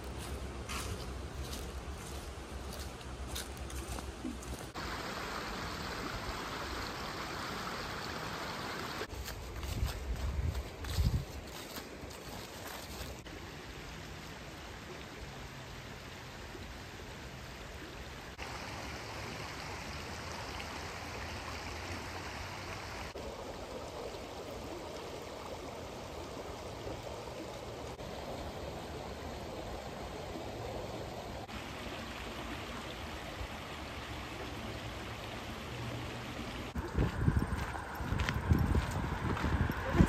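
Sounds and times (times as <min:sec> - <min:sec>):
waterfall rushing: 0:04.7 - 0:09.1.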